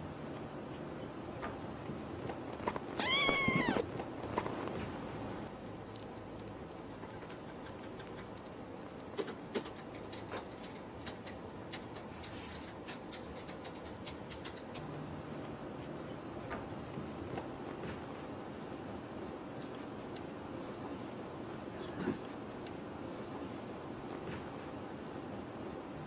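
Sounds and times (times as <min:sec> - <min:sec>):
kitten claws pattering: 0:02.0 - 0:05.0, 0:05.6 - 0:14.9.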